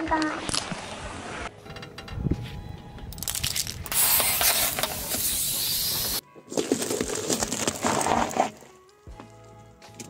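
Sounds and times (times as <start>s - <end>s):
gas hissing out: 3.9s - 6.2s
tyre crushing produce crackling: 6.5s - 8.8s.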